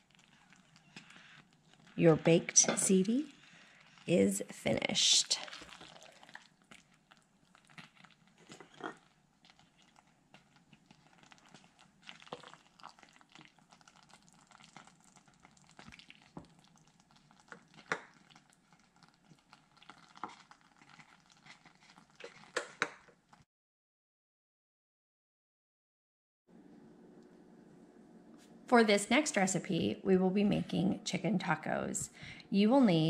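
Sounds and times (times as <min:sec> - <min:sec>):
spoon scooping pasta squelches: 0:00.0 - 0:23.4.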